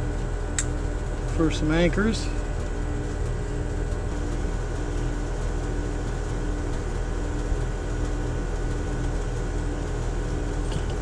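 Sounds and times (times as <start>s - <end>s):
machine humming: 0.0s - 11.0s.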